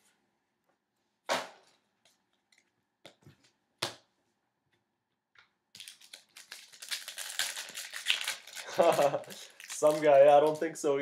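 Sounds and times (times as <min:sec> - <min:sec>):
wrapper crinkling: 0:05.7 - 0:11.0.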